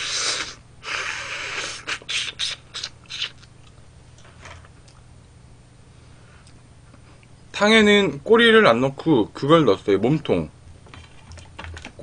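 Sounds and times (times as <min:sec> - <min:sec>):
person slurping: 0:00.0 - 0:03.5
crunching chewing: 0:02.7 - 0:03.8.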